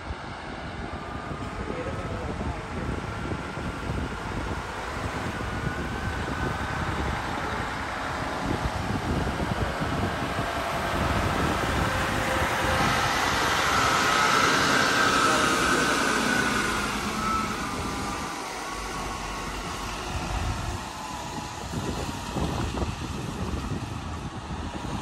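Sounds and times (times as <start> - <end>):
truck engine and tyres: 0.0 - 25.0.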